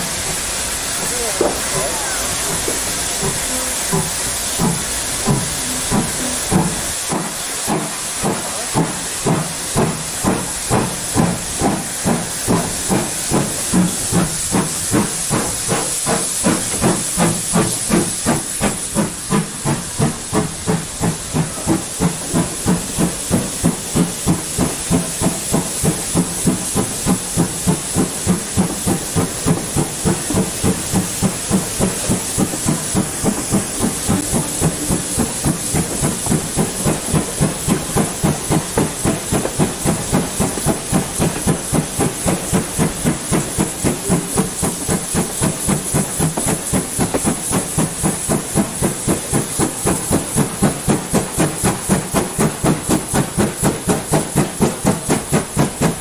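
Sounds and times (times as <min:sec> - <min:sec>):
steam locomotive exhaust beats: 0:00.0 - 0:56.0.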